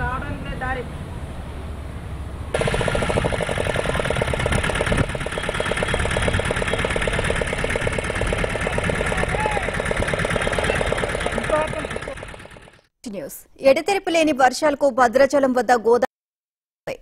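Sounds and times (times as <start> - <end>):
engine chugging: 2.5 - 12.9.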